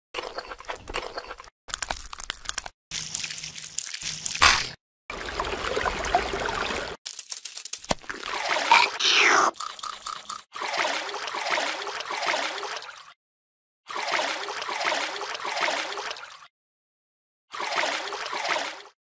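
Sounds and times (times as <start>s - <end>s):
water splashing and gurgling: 8.0s - 13.2s, 13.9s - 16.5s, 17.5s - 19.0s.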